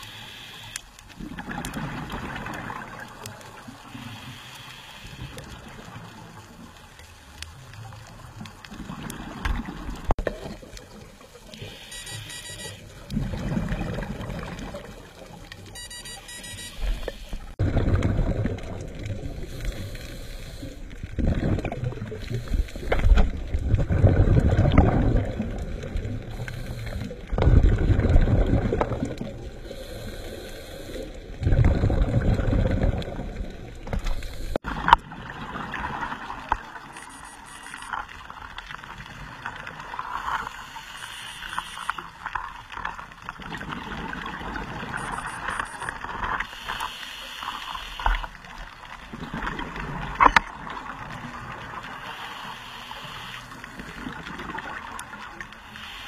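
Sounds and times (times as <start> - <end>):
underwater crackle: 0.0 - 56.0
exhaled bubbles underwater: 1.1 - 4.2, 7.5 - 11.8, 12.7 - 15.8, 16.8 - 37.0, 41.4 - 46.6, 47.4 - 55.6.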